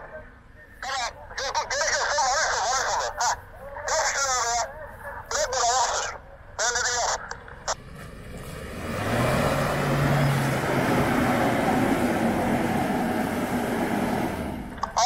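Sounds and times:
suv engine revving hard: 7.8 - 14.7.

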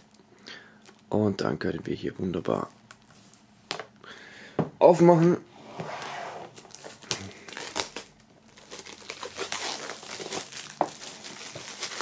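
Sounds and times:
plastic shrink-wrap crinkling and tearing: 0.0 - 0.2, 0.8 - 1.2, 2.5 - 3.4, 6.6 - 12.0.

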